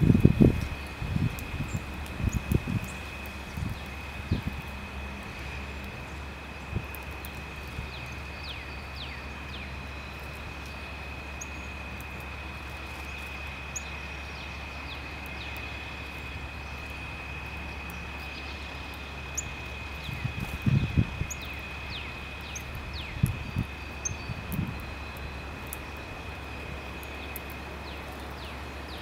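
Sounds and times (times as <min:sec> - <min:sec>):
steady low rumble: 0:00.0 - 0:29.0.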